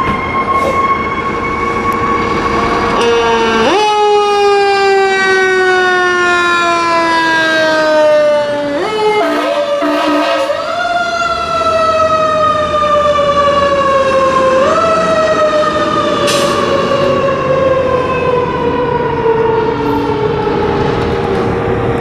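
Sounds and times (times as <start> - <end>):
fire engine siren wailing: 0.0 - 22.0
truck engine rumble: 0.0 - 22.0.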